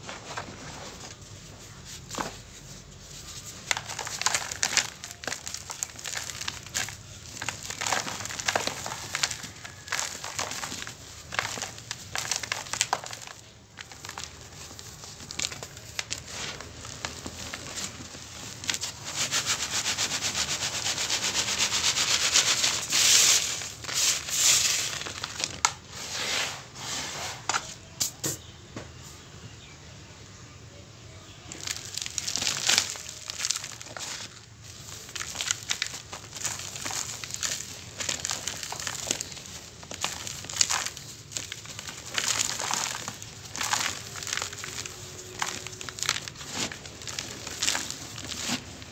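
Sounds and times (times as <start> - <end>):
colander of crumbs shaken: 2.5 - 25.4, 31.6 - 48.9
grit pattering onto plastic colander: 3.6 - 20.4, 35.1 - 48.9.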